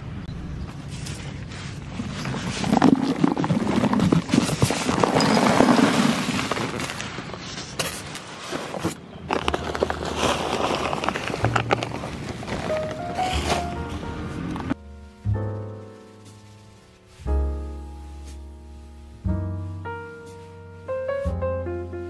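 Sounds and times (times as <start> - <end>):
soil clods rattling onto leaves: 0.9 - 14.7.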